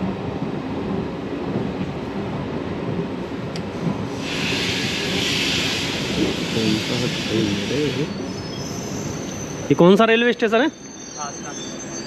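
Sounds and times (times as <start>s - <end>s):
train coaches rumbling: 0.0s - 12.0s
high hiss: 4.2s - 9.5s.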